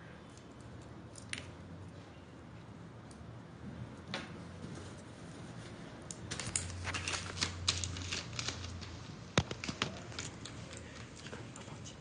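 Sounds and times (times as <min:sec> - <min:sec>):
plastic clicks and rustling: 0:06.1 - 0:11.5.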